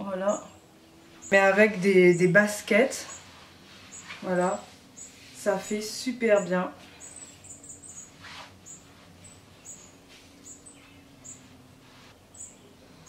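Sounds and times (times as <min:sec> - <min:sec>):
small bird chirping: 0:00.2 - 0:13.0
soft rustles: 0:03.0 - 0:06.0, 0:06.7 - 0:12.6.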